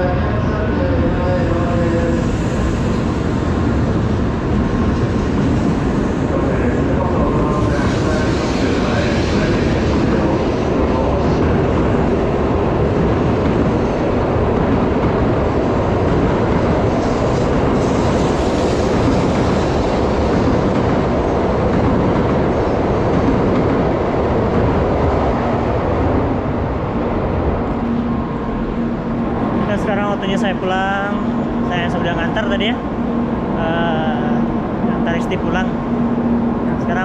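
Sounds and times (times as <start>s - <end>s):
train wheels rumbling: 0.0s - 37.0s
rushing air: 0.8s - 37.0s.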